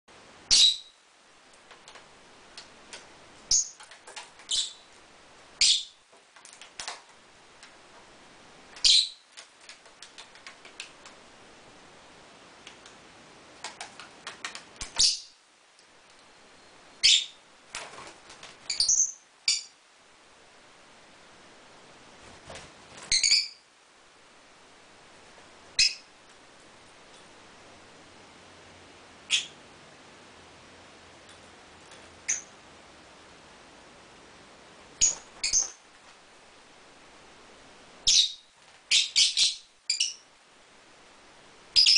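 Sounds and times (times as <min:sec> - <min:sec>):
lovebirds shrill calls: 0:00.5 - 0:01.0, 0:03.5 - 0:03.8, 0:04.5 - 0:05.0, 0:05.6 - 0:06.0, 0:08.8 - 0:09.2, 0:14.9 - 0:15.4, 0:16.6 - 0:17.4, 0:18.7 - 0:19.8, 0:23.1 - 0:23.6, 0:25.8 - 0:26.1, 0:29.3 - 0:29.6, 0:32.3 - 0:32.5, 0:35.0 - 0:35.8, 0:38.0 - 0:40.2.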